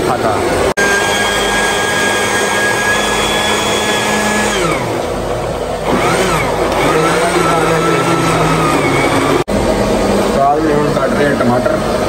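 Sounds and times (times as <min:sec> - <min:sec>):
electric blender motor: 0:00.7 - 0:09.6.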